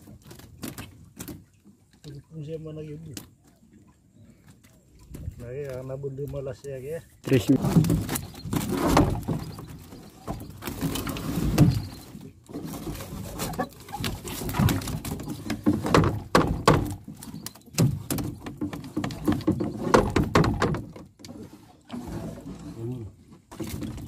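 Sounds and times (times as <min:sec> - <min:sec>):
wire mesh knocking on wooden hull: 0:14.6 - 0:17.1, 0:17.8 - 0:21.0.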